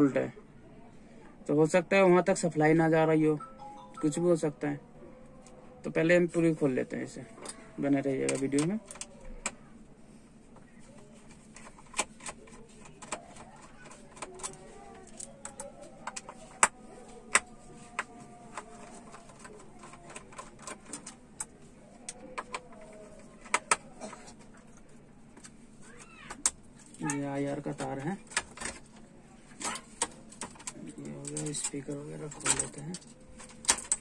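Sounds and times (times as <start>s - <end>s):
plastic connectors clicking: 11.5s - 24.8s.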